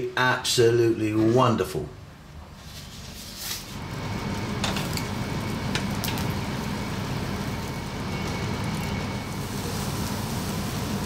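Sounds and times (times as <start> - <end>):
chicken wings sizzling on grill: 3.4 - 11.0
sharp crackles and pops: 3.7 - 11.0.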